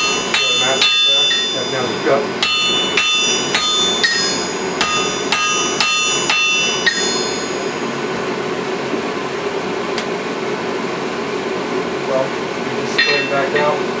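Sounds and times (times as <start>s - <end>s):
hammer ringing on anvil: 0.0s - 8.2s, 12.9s - 13.8s
steady low hum: 0.0s - 14.0s.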